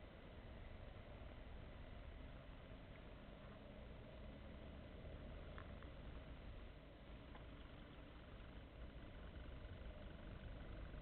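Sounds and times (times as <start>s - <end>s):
bicycle rolling noise: 0.4s - 11.0s
faint ticks: 5.2s - 6.4s, 7.2s - 11.0s.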